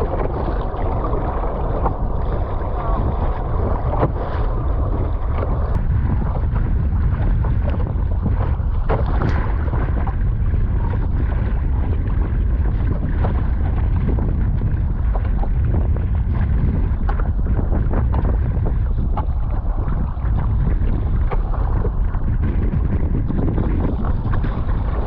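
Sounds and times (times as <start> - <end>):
choppy water against hull: 0.0 - 25.0
paddle splashes: 0.0 - 25.0
wind buffeting microphone: 0.0 - 25.0.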